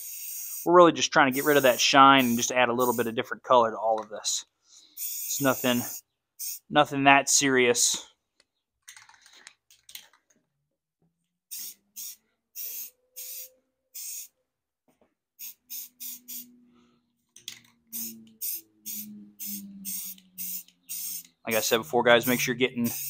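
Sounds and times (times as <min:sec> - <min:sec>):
spray paint can hissing: 0:00.0 - 0:00.7, 0:01.3 - 0:03.1, 0:05.0 - 0:06.7, 0:11.5 - 0:14.3, 0:15.4 - 0:16.5, 0:17.9 - 0:23.0.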